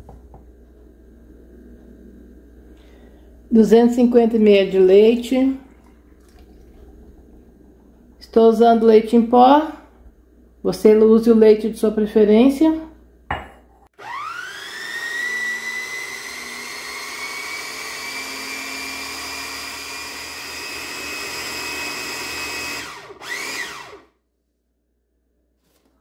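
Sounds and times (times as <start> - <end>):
blender motor whining: 14.0 - 24.1.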